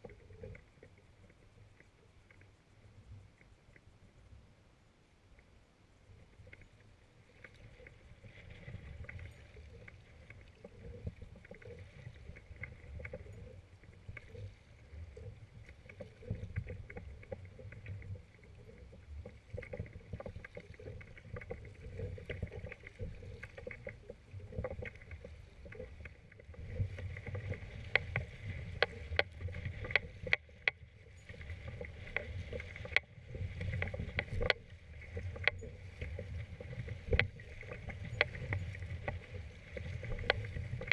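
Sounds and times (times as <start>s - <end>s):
paddle strokes in water: 6.0s - 40.9s
wind rumble on microphone: 7.5s - 40.9s
water slapping against hull: 14.0s - 40.9s.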